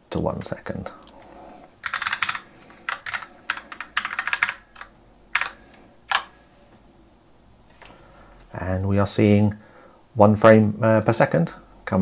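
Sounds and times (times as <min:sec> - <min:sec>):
typing on computer keyboard: 0:01.8 - 0:06.3.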